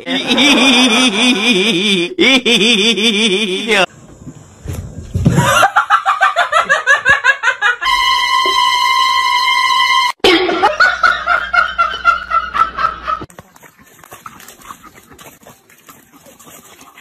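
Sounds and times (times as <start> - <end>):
person laughing: 0.0 - 3.9, 5.3 - 7.8, 10.2 - 13.3.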